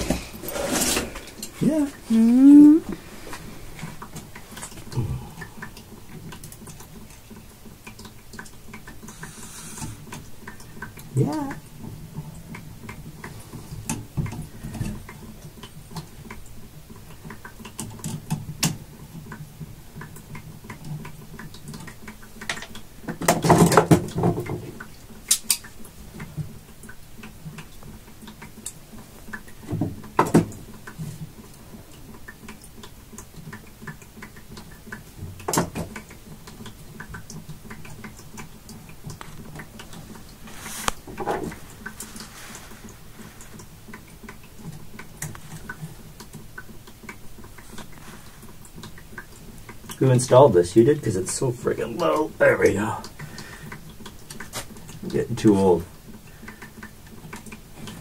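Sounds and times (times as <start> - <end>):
hand tools clicking and scraping: 0.0 - 1.7
low steady hum: 0.0 - 23.2.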